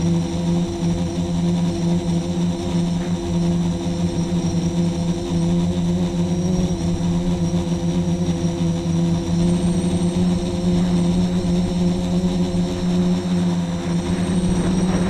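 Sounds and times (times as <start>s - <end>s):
quadcopter motors humming: 0.0s - 15.0s
wind rumble on microphone: 9.1s - 15.0s.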